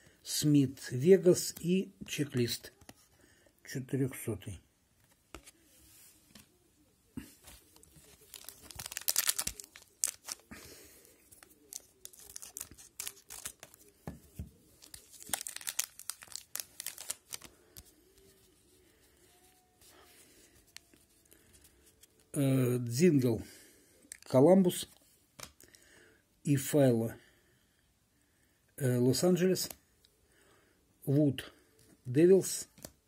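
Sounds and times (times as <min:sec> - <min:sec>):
card pack wrapper crinkling: 0:07.5 - 0:18.0, 0:24.1 - 0:24.3.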